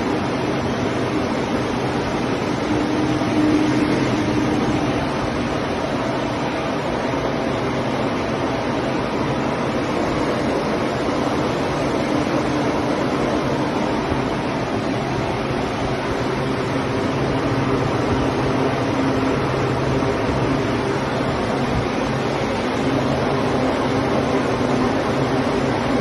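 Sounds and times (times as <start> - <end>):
air-mover blowers running: 0.0 - 26.0.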